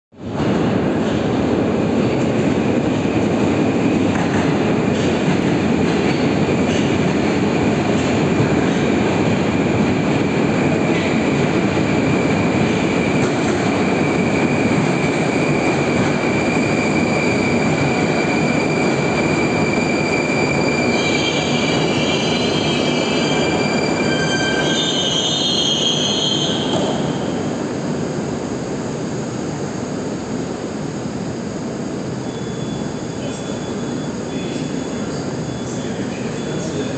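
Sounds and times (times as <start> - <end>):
metro train running noise: 0.1 - 36.9
train brakes squealing: 10.7 - 27.5, 32.1 - 36.9.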